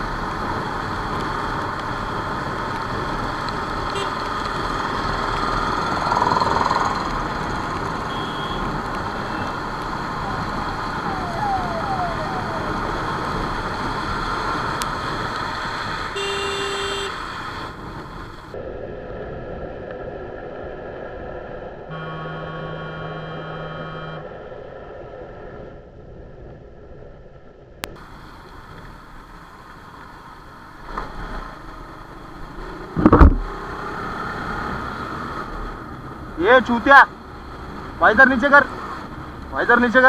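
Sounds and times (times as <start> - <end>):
wind and road noise: 0.0 - 40.0
vehicle horns honking: 3.9 - 4.3, 8.0 - 9.6, 16.1 - 17.2, 21.9 - 24.2.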